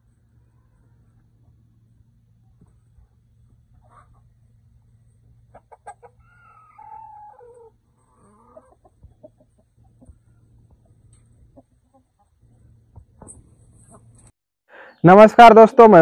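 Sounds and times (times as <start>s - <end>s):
chickens clucking: 2.6s - 16.0s
rooster crowing: 6.2s - 8.7s.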